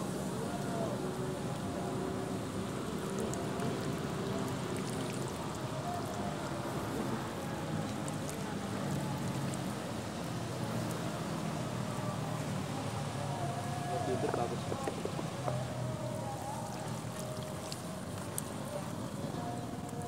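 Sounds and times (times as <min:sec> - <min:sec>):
low engine hum: 0:00.0 - 0:20.0.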